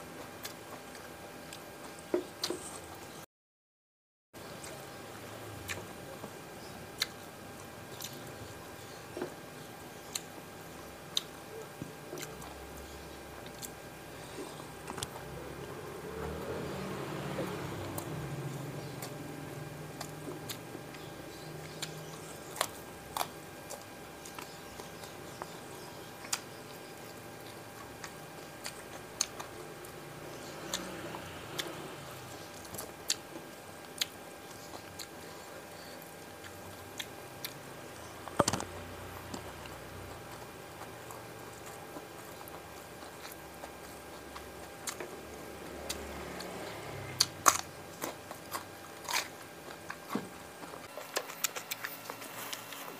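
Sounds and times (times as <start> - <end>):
chewing and mouth sounds: 0.2 - 2.9, 5.6 - 9.4, 10.1 - 52.9
crunch: 47.2 - 52.9.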